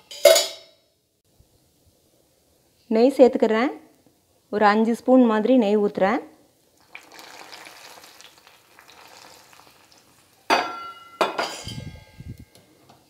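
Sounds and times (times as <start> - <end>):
food bubbling and sizzling in pot: 6.6 - 11.0
ghee being poured: 6.8 - 10.5
metal utensil knocking on pot: 10.5 - 11.8.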